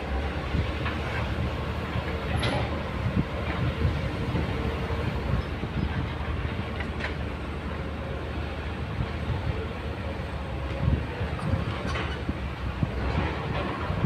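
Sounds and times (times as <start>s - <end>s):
excavator diesel engine: 0.0s - 14.0s.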